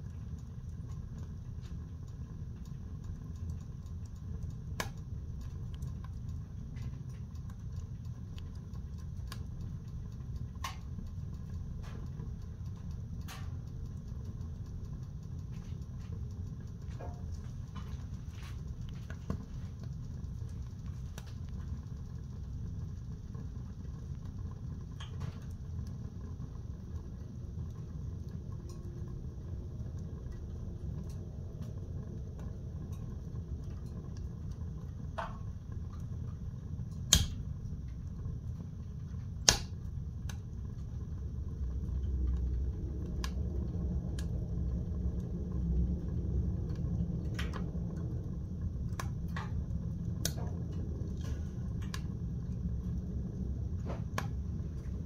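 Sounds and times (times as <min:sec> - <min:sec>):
fire crackling: 0:00.0 - 0:55.0
wood fire rumbling: 0:00.0 - 0:55.0
sharp pops from fire: 0:00.2 - 0:22.3, 0:32.3 - 0:38.3, 0:39.0 - 0:40.9, 0:48.8 - 0:52.6, 0:53.8 - 0:55.0.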